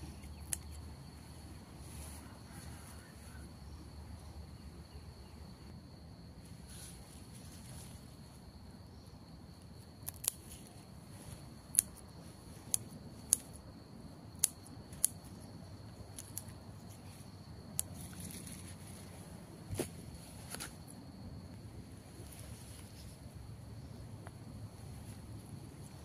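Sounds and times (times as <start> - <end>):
scissors snipping stems: 10.0 - 10.6, 14.3 - 15.2.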